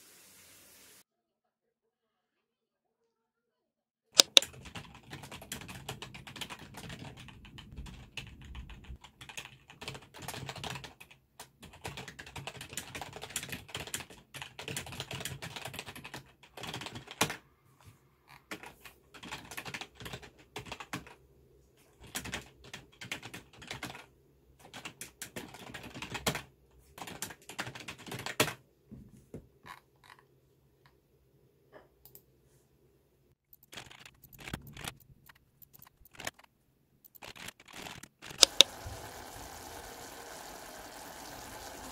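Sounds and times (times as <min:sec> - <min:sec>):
computer keyboard typing: 0:04.2 - 0:17.4, 0:18.5 - 0:21.2, 0:22.0 - 0:28.6, 0:33.5 - 0:41.9.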